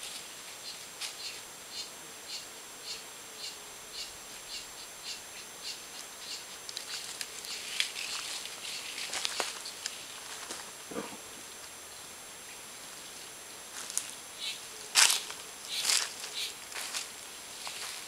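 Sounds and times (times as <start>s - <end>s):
dry leaf litter rustling: 6.5s - 10.8s, 12.9s - 18.0s.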